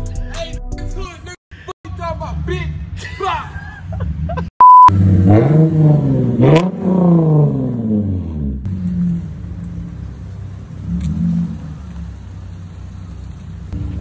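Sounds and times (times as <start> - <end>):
car engine revving: 4.7 - 14.0.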